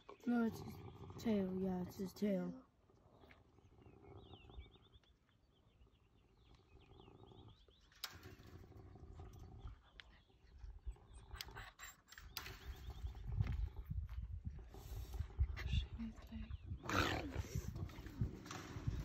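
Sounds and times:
faint low animal growling: 0.0s - 12.1s, 13.0s - 19.0s.

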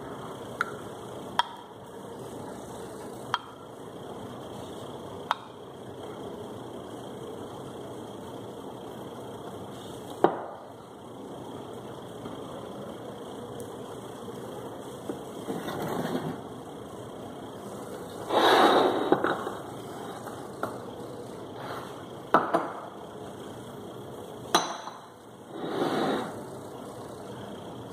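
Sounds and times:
cup scraping on counter: 15.5s - 16.4s, 18.3s - 20.3s, 25.5s - 26.4s
cups clinking on saucers: 18.3s - 19.6s.

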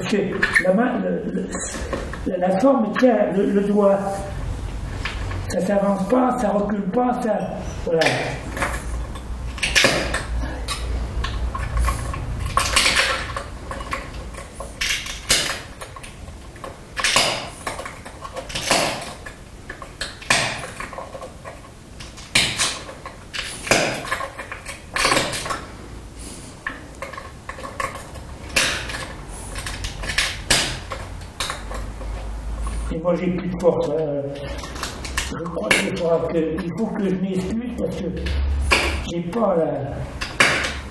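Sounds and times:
glass snapping and scraping: 8.0s - 25.7s, 26.6s - 32.2s.

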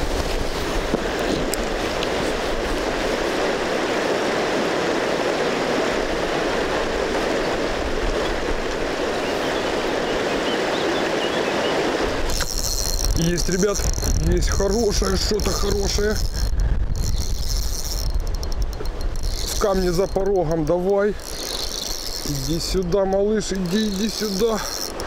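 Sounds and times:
river rushing over rapids: 0.0s - 12.3s.

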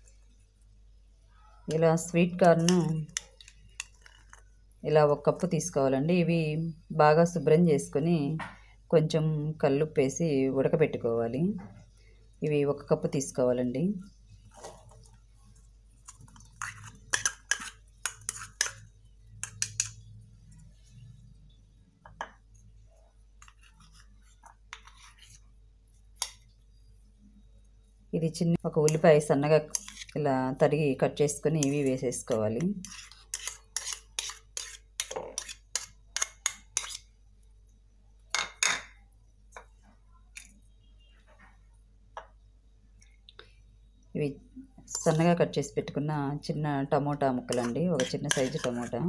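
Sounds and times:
onion scraped into bowl: 16.1s - 18.8s, 29.7s - 30.2s, 32.6s - 37.1s, 47.5s - 49.0s.

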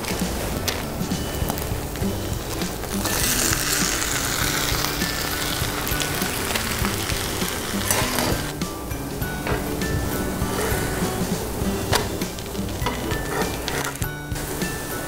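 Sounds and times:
background music: 0.0s - 15.0s
dough sizzling on griddle: 1.2s - 8.5s.

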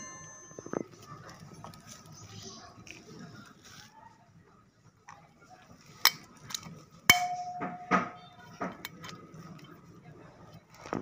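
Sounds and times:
metallic ringing tone: 0.0s - 1.1s, 7.1s - 8.4s
metal tools clanking: 6.0s - 9.9s.

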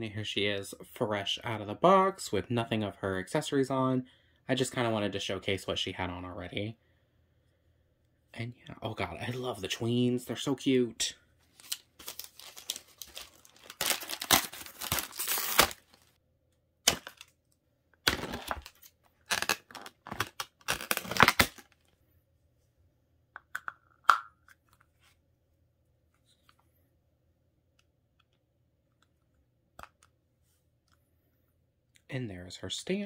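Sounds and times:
packaging crinkling and tearing: 11.5s - 16.1s, 16.9s - 17.3s, 18.1s - 21.8s.

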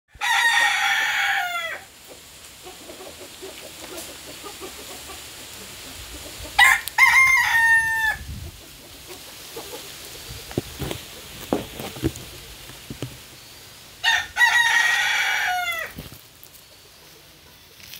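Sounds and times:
rooster crowing: 0.1s - 1.9s, 6.6s - 8.3s, 14.0s - 16.0s.

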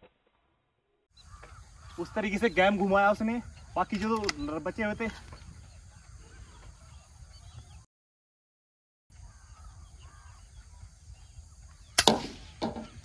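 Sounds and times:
distant bird calls: 1.1s - 7.9s, 9.1s - 13.0s
loud sharp click: 12.0s - 12.4s.

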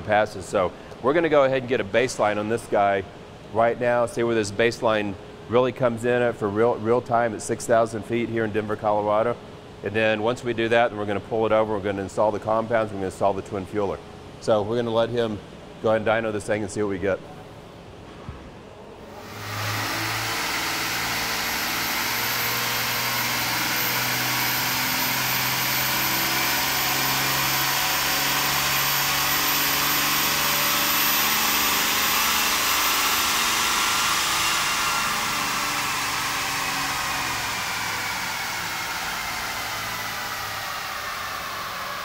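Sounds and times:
diesel engine full-throttle pull: 19.1s - 42.0s.

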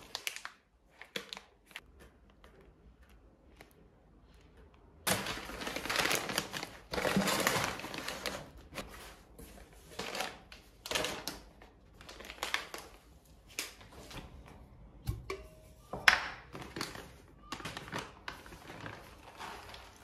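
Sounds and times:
plastic wrappers crinkling: 0.0s - 1.8s, 5.0s - 14.2s, 16.2s - 20.0s.

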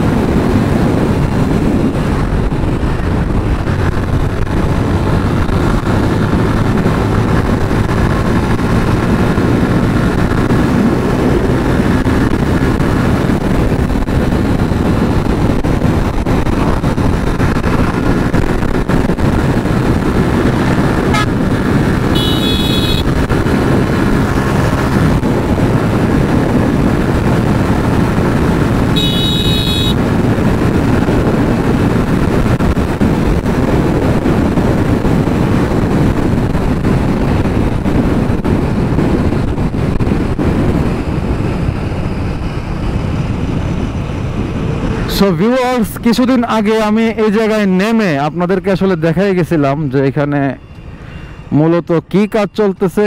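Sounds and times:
motorcycle engine: 0.0s - 45.1s
wind rush: 0.0s - 51.6s
motorcycle horn blasts: 21.1s - 21.3s, 22.1s - 23.2s, 29.0s - 30.0s.

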